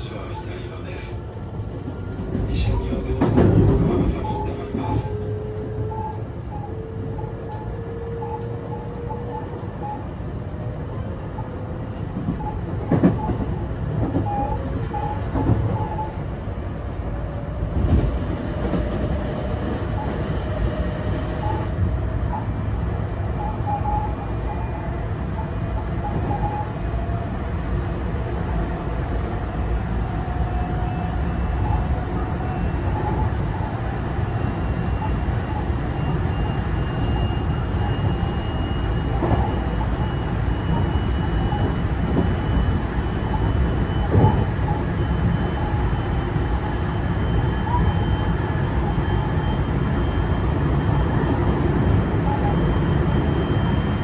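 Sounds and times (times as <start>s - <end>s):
train wheels rumbling on rail: 0.0s - 54.0s
track knocks: 1.6s - 4.2s.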